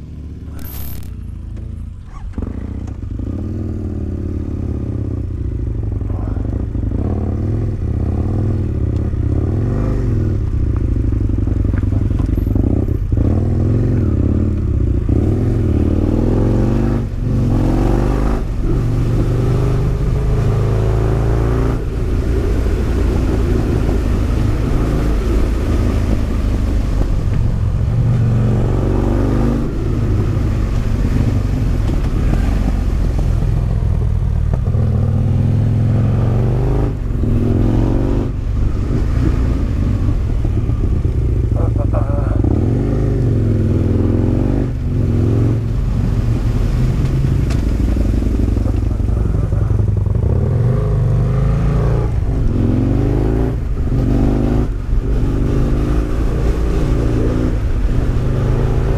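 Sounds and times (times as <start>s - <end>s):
motorcycle engine revving: 0.0s - 58.9s.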